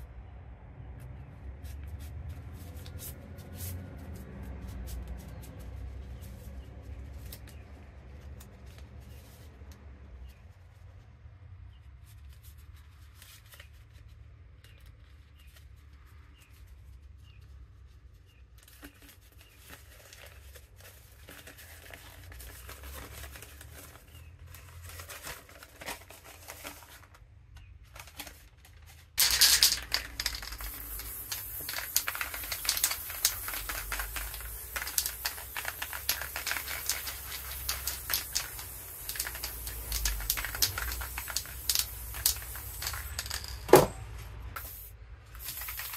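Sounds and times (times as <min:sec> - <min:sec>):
paper crinkling: 0:18.6 - 0:27.2
spray can hissing: 0:29.2 - 0:43.6, 0:44.6 - 0:45.9.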